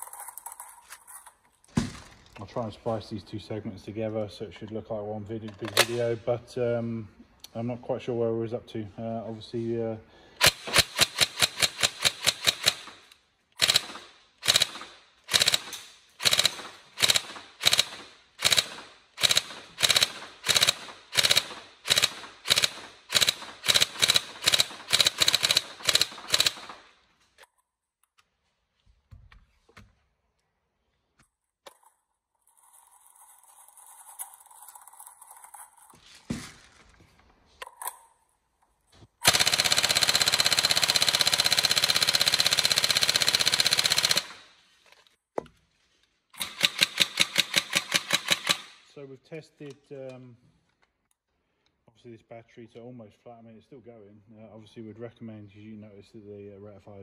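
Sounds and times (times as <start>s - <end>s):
airsoft rifle firing: 10.4s - 26.9s, 39.2s - 44.6s, 46.4s - 48.8s.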